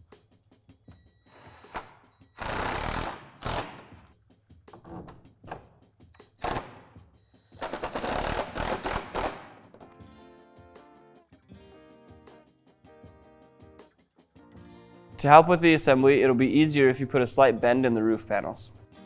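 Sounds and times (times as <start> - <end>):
cordless drill driving screws: 1.3 - 4.0, 6.4 - 6.8, 7.6 - 9.4
guitar background music: 8.3 - 19.0.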